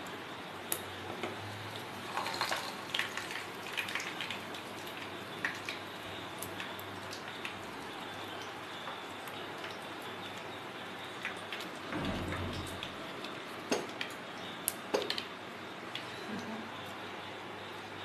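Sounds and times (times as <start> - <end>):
hot oil sizzling: 0.0 - 15.3
oil crackling and spitting: 2.0 - 5.8.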